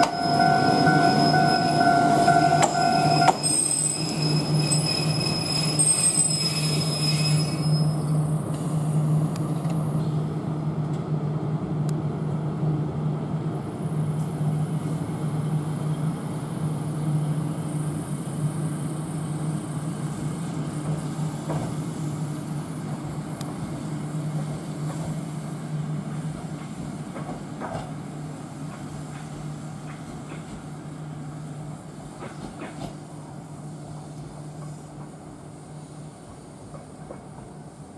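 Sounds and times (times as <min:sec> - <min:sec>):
high wheel squeal: 0:00.0 - 0:08.2
electric train humming: 0:00.0 - 0:27.3.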